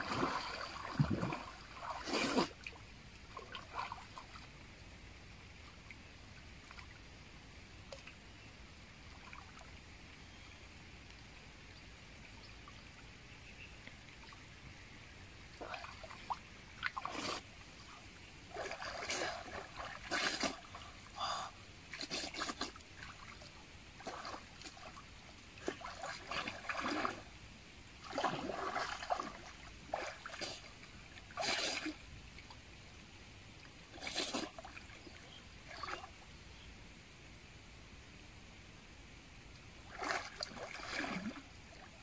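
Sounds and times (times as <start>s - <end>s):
water sloshing and splashing: 0.0s - 4.6s, 15.5s - 17.9s, 18.5s - 21.1s, 21.9s - 27.4s, 28.0s - 32.6s, 39.8s - 42.0s.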